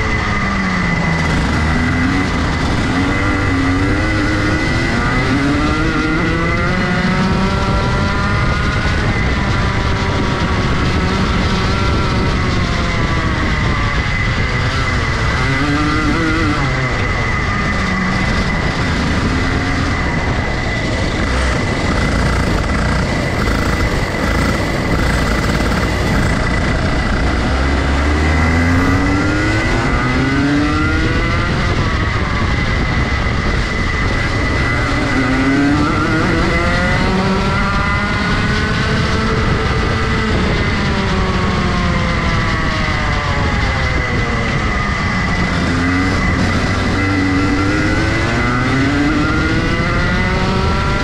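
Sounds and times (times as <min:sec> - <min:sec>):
steady high whine: 0:00.0 - 0:07.1, 0:07.8 - 0:38.7
kart engine revving: 0:00.0 - 0:51.0.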